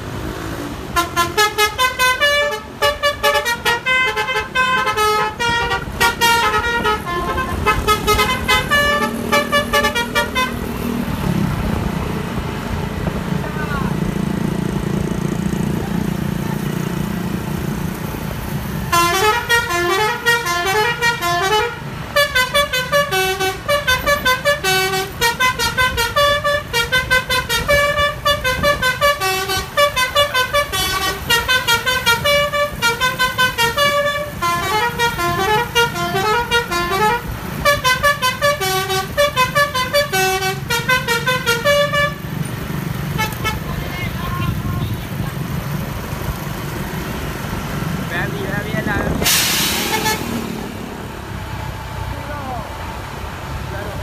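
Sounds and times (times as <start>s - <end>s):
bus engine rumble: 0.0s - 54.0s
bus musical horn melody: 0.9s - 11.0s, 18.8s - 42.5s, 43.1s - 45.0s, 49.3s - 50.6s.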